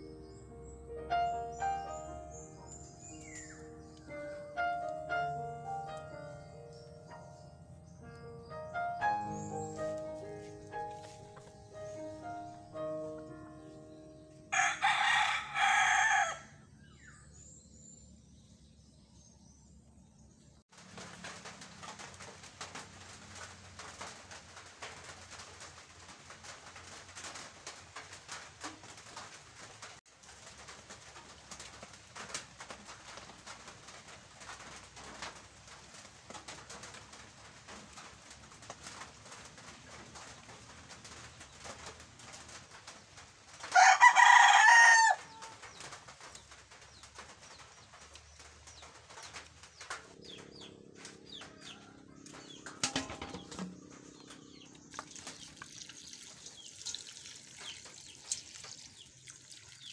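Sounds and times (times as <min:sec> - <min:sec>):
rooster crowing: 0:14.5 - 0:16.7, 0:43.7 - 0:45.6, 0:51.0 - 0:52.4
faint crackles and ticks: 0:20.7 - 0:59.5.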